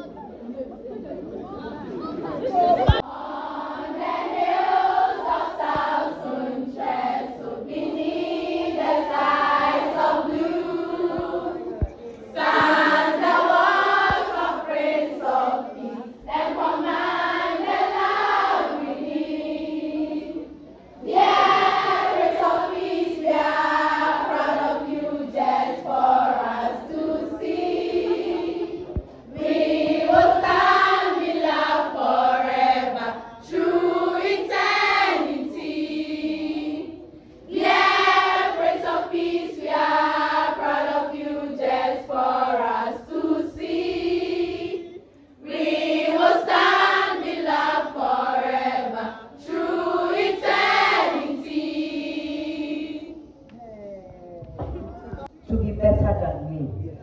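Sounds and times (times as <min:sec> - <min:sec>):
girls choir singing: 0:01.8 - 0:53.4.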